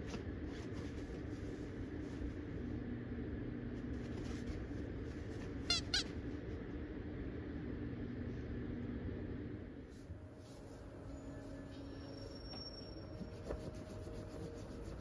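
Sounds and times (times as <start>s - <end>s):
steady room hum: 0.0s - 15.0s
short high squeaks: 5.7s - 6.1s.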